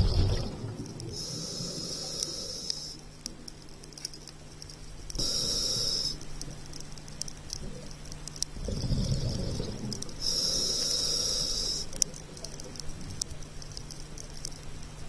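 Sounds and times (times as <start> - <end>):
exhaled bubbles rumbling: 0.0 - 1.2, 8.6 - 10.2
faint sharp clicks: 0.7 - 8.8, 9.8 - 15.0
regulator inhale hiss: 1.1 - 3.2, 5.2 - 6.4, 8.6 - 12.2.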